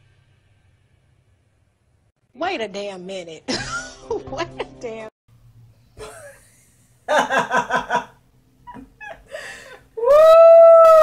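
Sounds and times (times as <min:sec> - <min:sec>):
woman laughing: 0:03.5 - 0:05.0, 0:06.0 - 0:08.1, 0:08.7 - 0:09.5
woman whooping: 0:10.0 - 0:11.0.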